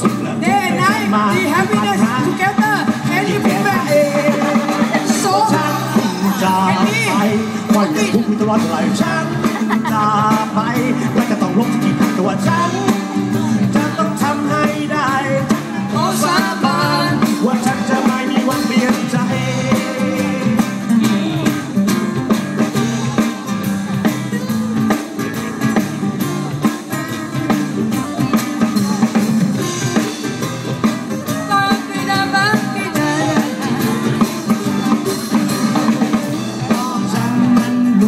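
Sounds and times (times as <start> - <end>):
person singing: 0.0 - 21.8, 22.6 - 38.0
live band playing: 0.0 - 38.0
saxophone: 19.4 - 21.9.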